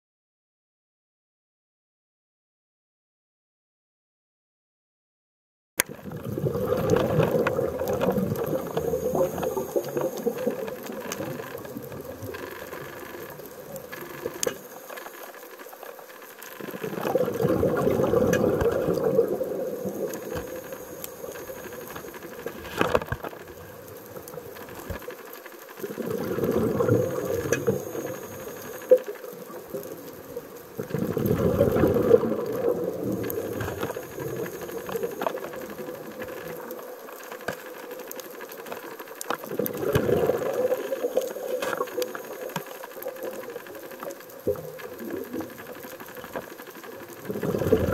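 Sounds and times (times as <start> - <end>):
underwater bubbling exhalations: 6.0 - 14.6, 16.6 - 22.8, 25.8 - 36.2, 39.4 - 42.6, 47.1 - 47.9
regulator hiss: 7.7 - 15.7, 18.0 - 22.7, 26.2 - 30.8, 33.0 - 36.1, 40.4 - 44.1.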